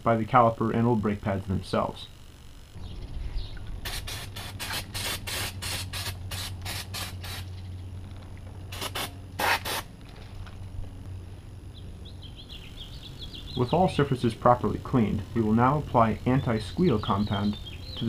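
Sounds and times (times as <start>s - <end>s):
aerosol spray bursts: 3.8s - 7.5s, 8.7s - 9.9s.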